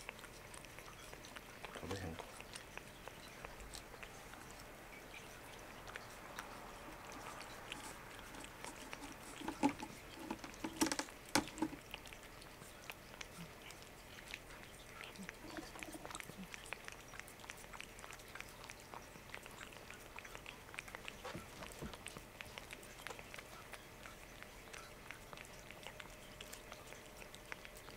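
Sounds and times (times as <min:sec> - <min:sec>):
cat licking with wet tongue clicks: 0:00.0 - 0:27.9.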